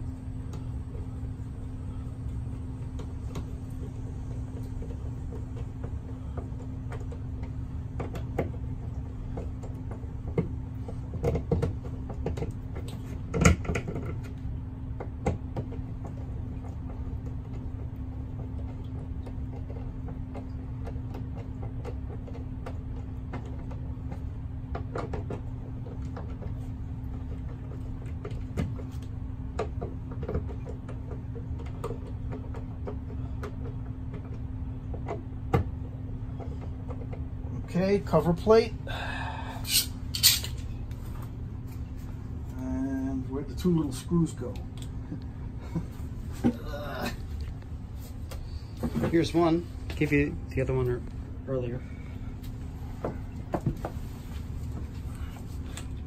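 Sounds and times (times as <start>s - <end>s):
steady low hum: 0.0s - 56.0s
screwdriver clicking and scraping metal: 39.7s - 40.6s.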